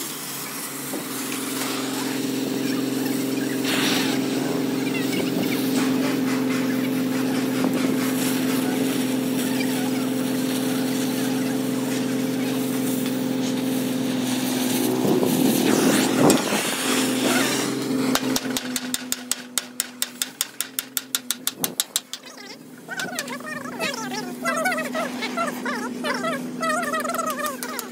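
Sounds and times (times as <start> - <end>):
low-pitched machine hum: 0.0 - 18.6, 22.3 - 27.9
fast sharp taps: 18.1 - 22.3.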